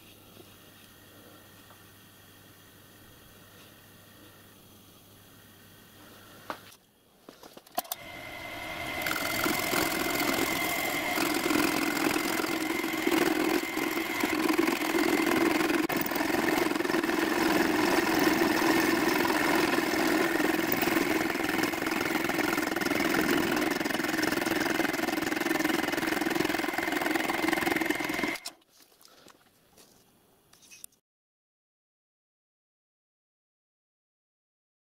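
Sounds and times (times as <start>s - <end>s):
milling machine cutting steel: 7.8s - 28.6s.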